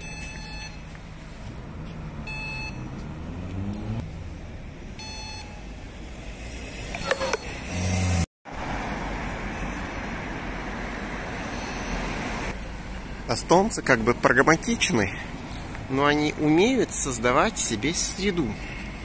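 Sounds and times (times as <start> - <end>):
passing cars: 0.0 - 19.0
vehicle rumbling past: 1.0 - 5.1, 5.7 - 13.2
short electronic beep: 2.3 - 2.8.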